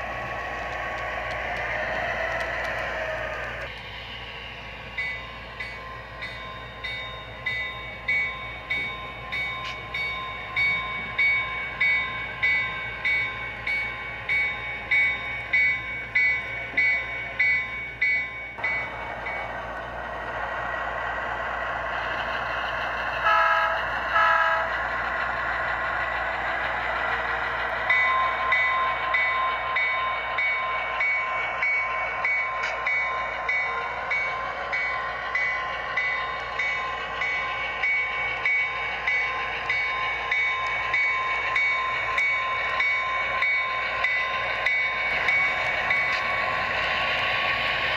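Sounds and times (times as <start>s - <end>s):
diesel engine sound: 0.0s - 9.8s, 11.6s - 47.9s
model locomotive bell ringing: 4.8s - 19.6s, 26.1s - 47.9s.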